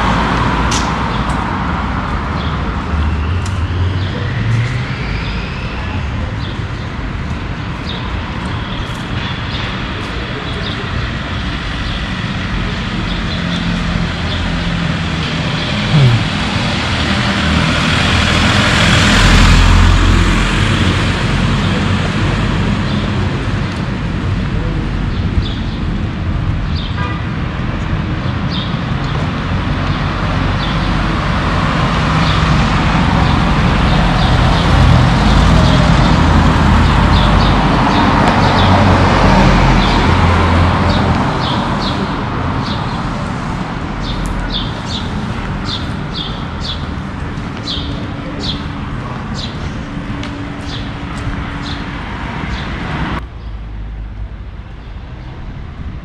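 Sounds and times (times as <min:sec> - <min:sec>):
traffic hum: 0:00.0 - 0:56.0
vehicle passing: 0:12.9 - 0:22.6.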